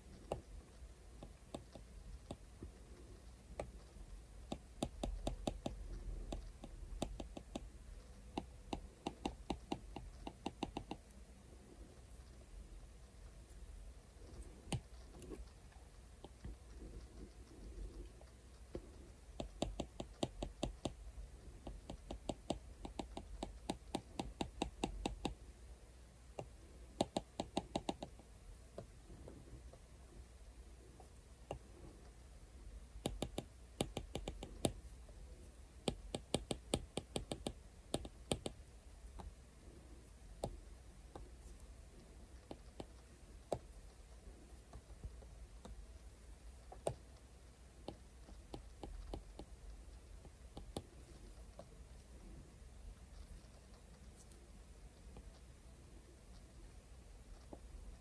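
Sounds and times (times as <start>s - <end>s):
stylus tapping on glass screen: 4.5s - 7.7s, 8.3s - 11.0s, 19.4s - 21.0s, 21.6s - 25.4s, 26.4s - 28.1s, 33.0s - 34.8s, 35.8s - 38.6s, 47.8s - 49.5s.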